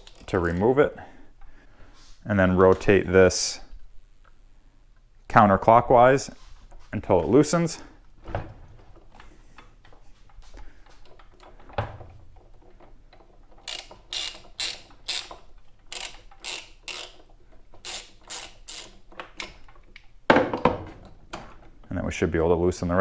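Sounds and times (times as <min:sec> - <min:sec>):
socket ratchet clicking: 0:13.6 - 0:20.0.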